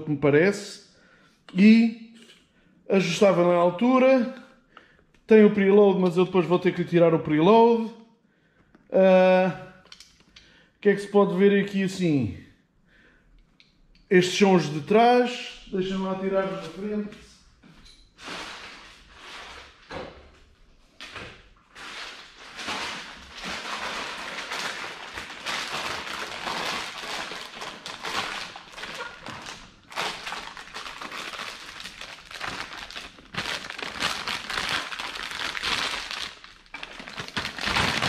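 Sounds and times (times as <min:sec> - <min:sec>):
plastic bag crinkling: 0:21.7 - 0:38.0.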